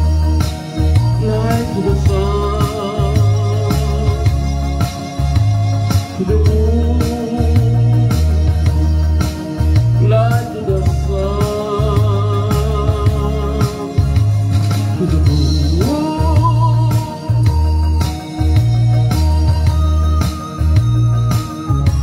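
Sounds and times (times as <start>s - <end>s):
man singing soul ballad: 0.0s - 4.9s, 5.9s - 17.8s
backing track bass and drums: 0.0s - 22.0s.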